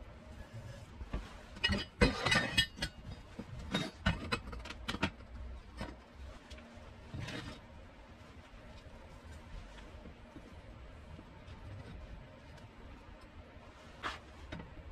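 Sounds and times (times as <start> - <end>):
steel bars clinking and knocking: 1.6 - 5.2.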